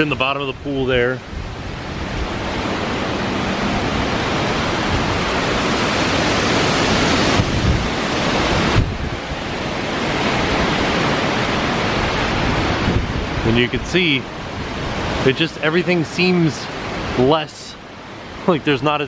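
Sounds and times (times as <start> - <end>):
wind buffeting microphone: 0.0 - 15.4
strong wind rushing through trees: 0.0 - 19.0.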